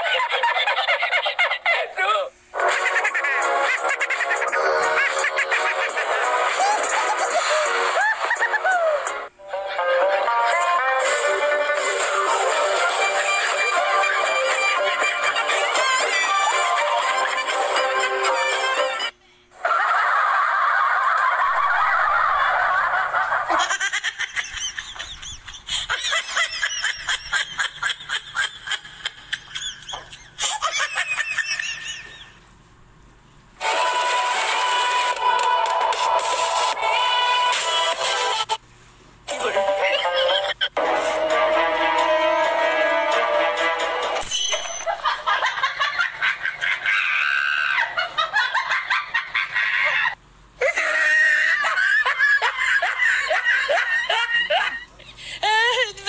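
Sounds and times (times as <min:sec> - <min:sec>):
squeaky laughing sound effect: 0:02.6 - 0:09.1, 0:44.2 - 0:45.0
background music: 0:02.6 - 0:19.1, 0:33.6 - 0:38.6, 0:39.3 - 0:44.8
woman talking and crying out: 0:55.4 - 0:56.0.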